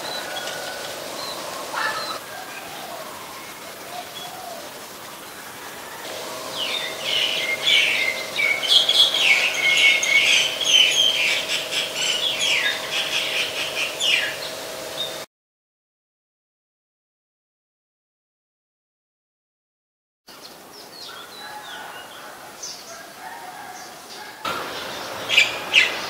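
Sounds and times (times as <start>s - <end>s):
myna bird chattering and whistling: 6.5s - 15.1s.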